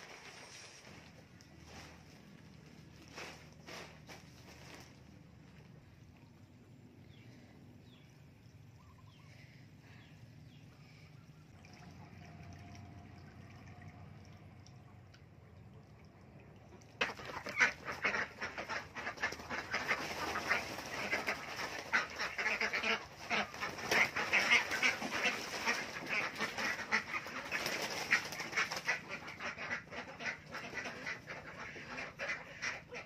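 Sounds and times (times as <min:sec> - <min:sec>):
water splashing: 0:10.8 - 0:30.3
ducks quacking: 0:16.7 - 0:33.0
wings flapping in water: 0:16.7 - 0:33.0.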